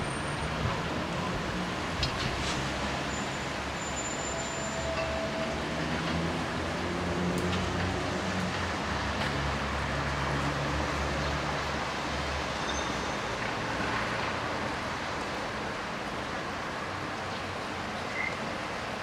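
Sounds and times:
wet-road traffic: 0.0s - 19.0s.

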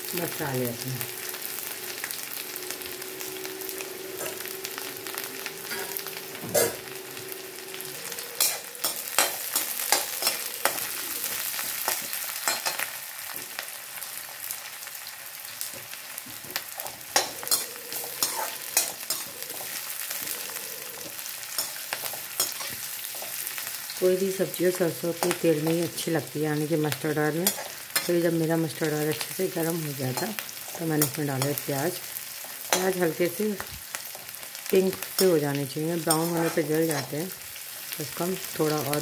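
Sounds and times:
onions sizzling in hot oil: 0.0s - 39.0s
metal spatula scraping a pan: 7.6s - 12.9s, 16.7s - 23.7s, 27.2s - 33.1s, 36.0s - 37.3s.

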